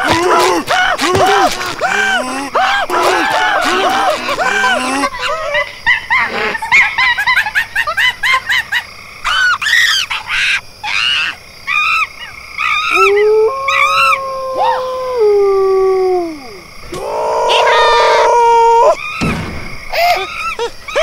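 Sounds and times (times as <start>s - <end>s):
long held cartoon yell: 0.0s - 5.2s, 12.6s - 19.0s
high-pitched cartoon yelps: 0.0s - 6.2s, 9.2s - 19.2s.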